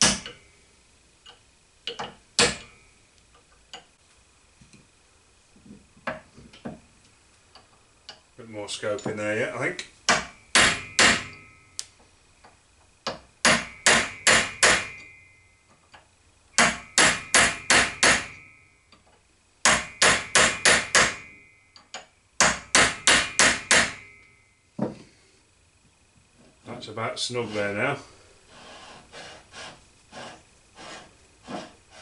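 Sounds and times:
hammer tapping metal: 0.0 - 0.4, 1.3 - 2.8, 9.8 - 11.9, 13.0 - 19.0, 19.6 - 25.0
faint metallic ring: 10.3 - 12.0, 13.6 - 15.9, 16.8 - 19.0, 21.2 - 22.3, 23.9 - 25.3.

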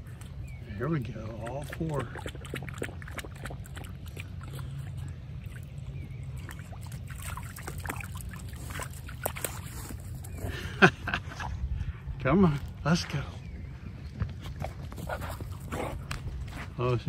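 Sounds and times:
dog splashing in shallow water: 1.3 - 10.4.

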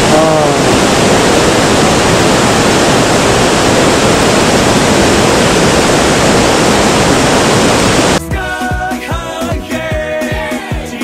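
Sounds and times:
waterfall roaring: 0.0 - 8.2.

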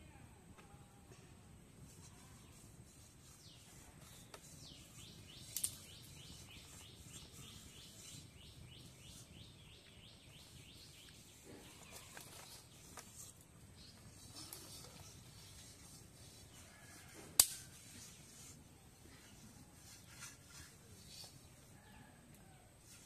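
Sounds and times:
faint outdoor hush: 0.0 - 23.0
sharp snap: 5.5 - 5.8, 17.4 - 17.6.

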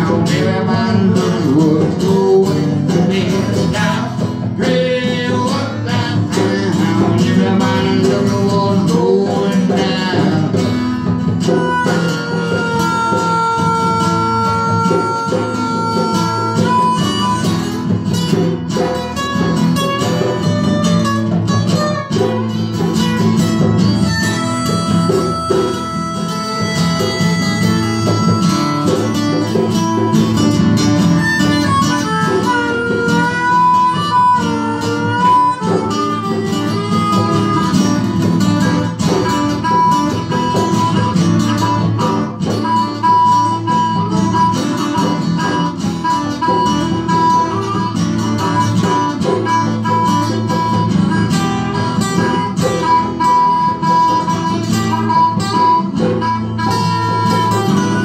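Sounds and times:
acoustic guitars strumming: 0.0 - 58.0
harmonica holding long notes: 0.0 - 58.0.

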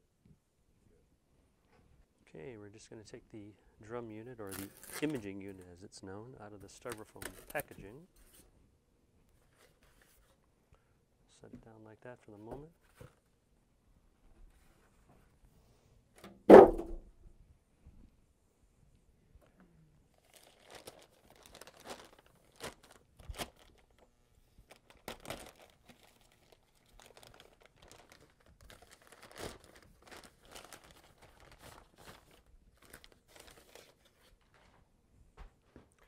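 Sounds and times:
plastic bag crinkling: 4.4 - 5.6, 20.1 - 34.8.

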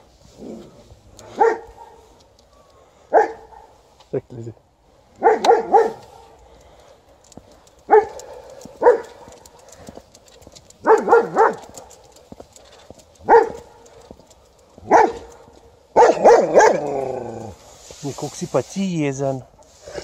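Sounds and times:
dog barking: 1.2 - 2.2, 3.1 - 3.8, 5.2 - 6.3, 7.9 - 9.6, 10.8 - 12.0, 13.2 - 14.1, 14.8 - 17.0.

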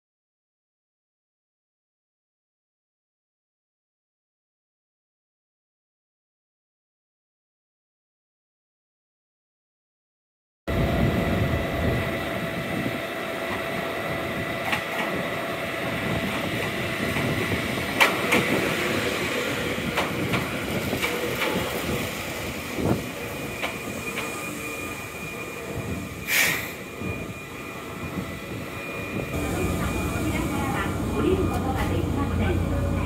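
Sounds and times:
electric train rumbling: 10.7 - 33.0
high squeal: 21.3 - 31.5
short hiss: 26.3 - 26.7.

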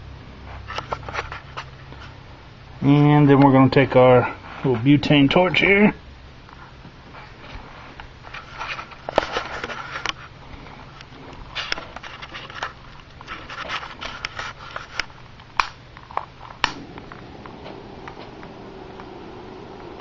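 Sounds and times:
handling rustling and clicks: 10.9 - 18.6
torch flame burning: 12.7 - 20.0
torch igniter clicks: 15.0 - 20.0.

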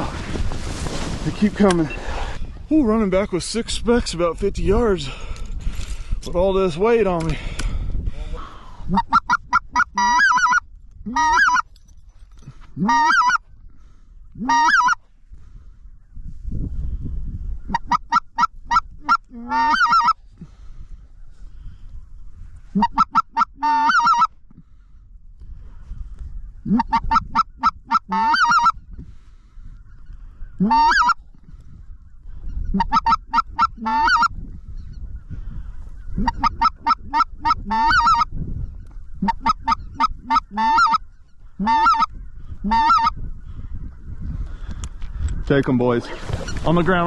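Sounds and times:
wind rumble on microphone: 0.0 - 47.0
goose yelping calls: 8.9 - 11.7, 12.8 - 13.4, 14.4 - 15.0, 17.7 - 20.2, 22.7 - 24.3, 26.7 - 28.8, 30.6 - 31.2, 32.7 - 34.3, 36.2 - 38.3, 39.2 - 41.0, 41.6 - 43.2.

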